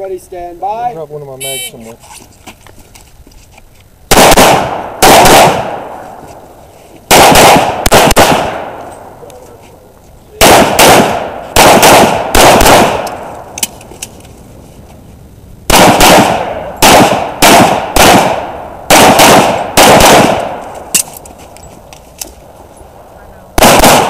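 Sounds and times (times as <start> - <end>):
handgun shots with echo: 10.4 - 13.7, 15.7 - 21.1, 23.6 - 24.0.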